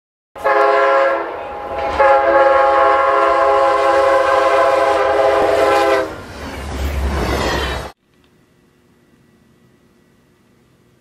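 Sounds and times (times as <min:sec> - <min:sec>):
train air horn blasts: 0:00.4 - 0:06.2.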